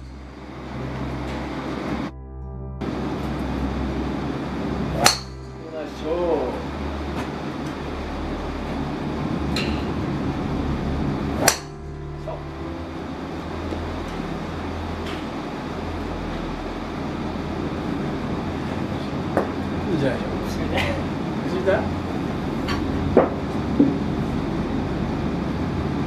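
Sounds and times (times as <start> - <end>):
low background hum: 0.0 - 26.0
golf club striking ball: 4.9 - 6.2, 11.4 - 12.4.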